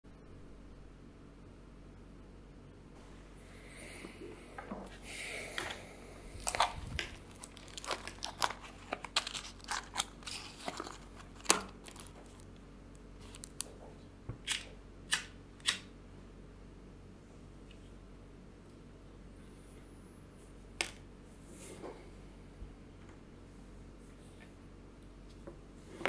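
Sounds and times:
paper crinkling and tearing: 6.4 - 12.6, 13.2 - 13.7.

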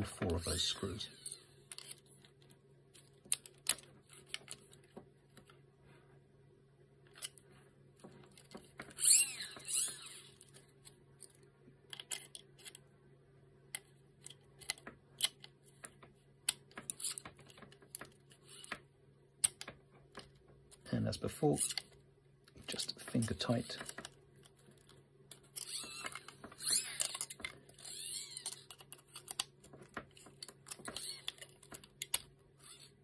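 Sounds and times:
screwdriver clicking and scratching plastic: 1.2 - 5.5, 11.2 - 12.8, 13.7 - 18.8, 19.4 - 20.9, 21.6 - 22.0, 22.7 - 33.0.

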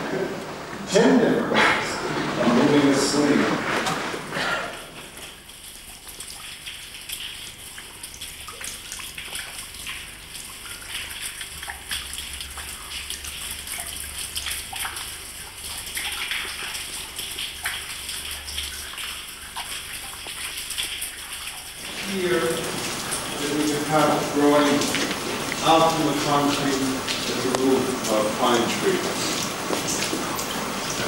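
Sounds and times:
water dripping and trickling: 3.9 - 31.0
steady hiss: 21.8 - 31.0.

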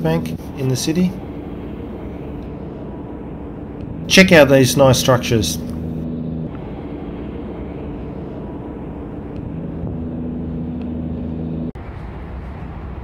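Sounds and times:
city traffic rumble: 0.0 - 13.0
engine hum: 0.0 - 13.0.

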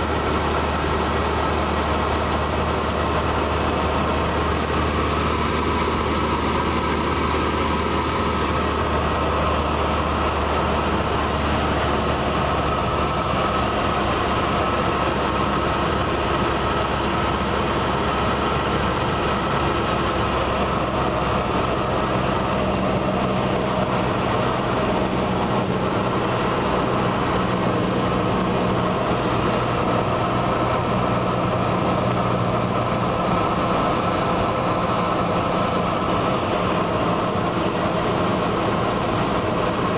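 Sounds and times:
aircraft piston engine and propeller: 0.0 - 39.9.

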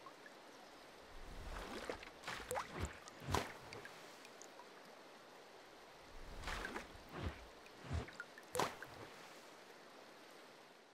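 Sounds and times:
watery bubbling and gurgling: 1.0 - 4.8.

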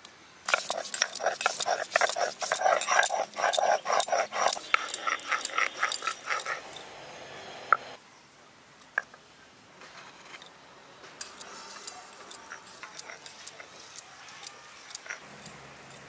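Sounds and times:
grinding stone rasping on slab: 0.5 - 6.8, 11.4 - 16.0.

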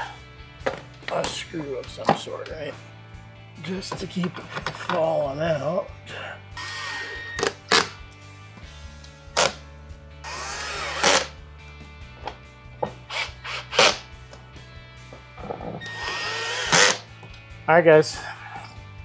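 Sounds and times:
power drill driving a screw: 6.6 - 7.9, 10.2 - 11.3, 13.1 - 14.0, 15.8 - 17.1.

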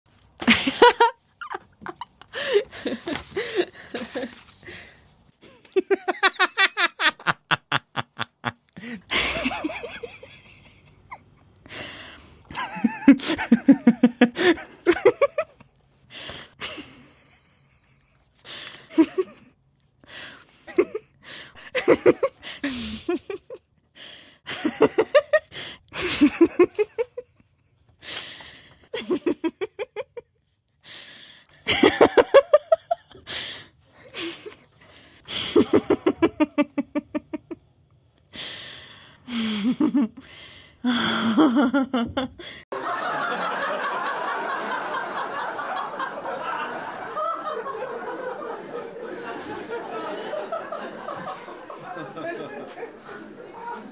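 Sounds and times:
person laughing: 5.4 - 11.4, 12.5 - 15.6, 35.3 - 37.6, 39.3 - 42.6.

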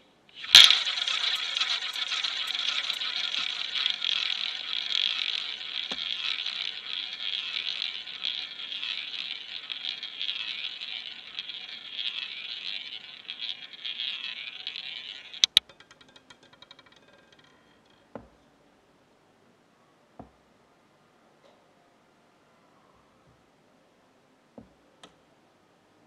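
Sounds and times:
roulette ball whirring: 0.4 - 17.6
roulette ball clacking and rattling: 0.4 - 18.4.

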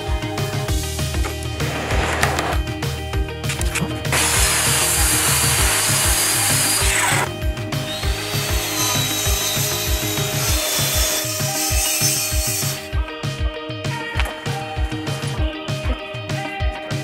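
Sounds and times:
background music with drumbeat: 0.0 - 17.0
miter saw cutting wood: 4.1 - 7.3, 7.9 - 12.9.

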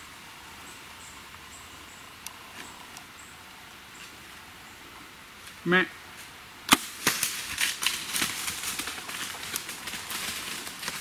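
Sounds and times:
bow shot crack: 6.7 - 7.6
deer crunching through leaves: 6.8 - 11.0.

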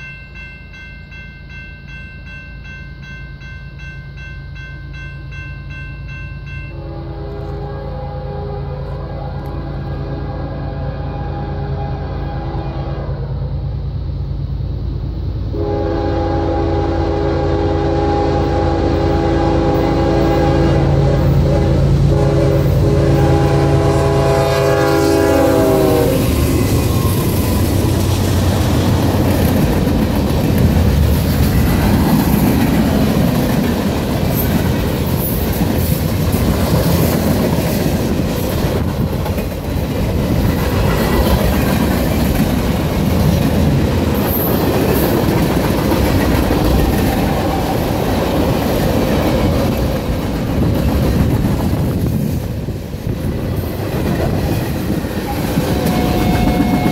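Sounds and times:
locomotive air horn: 6.7 - 13.5, 15.5 - 27.8, 55.2 - 56.9
train wheel clatter on rails: 26.2 - 56.9.

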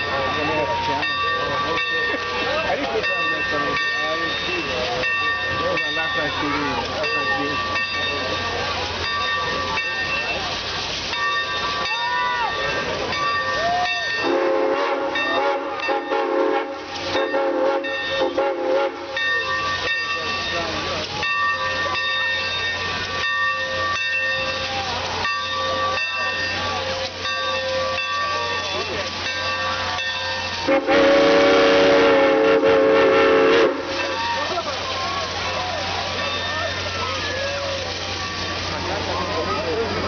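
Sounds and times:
steam engine hissing: 0.0 - 40.0
steam locomotive whistle: 13.5 - 19.6, 27.6 - 38.6.

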